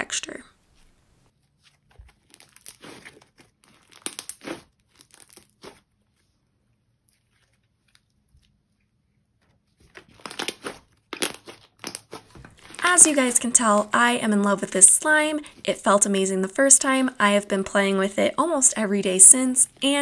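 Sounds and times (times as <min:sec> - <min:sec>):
slime crackling and popping: 0:02.0 - 0:05.9, 0:09.9 - 0:12.8.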